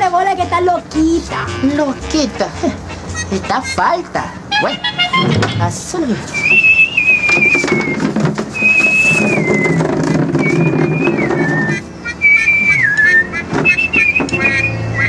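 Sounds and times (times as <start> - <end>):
musical backing: 0.0 - 15.0
person whistling a tune: 6.3 - 9.8, 10.4 - 15.0.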